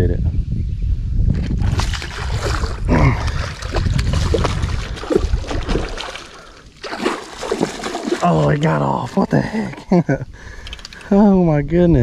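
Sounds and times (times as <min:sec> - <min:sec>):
fish thrashing and splashing water: 0:01.6 - 0:08.8.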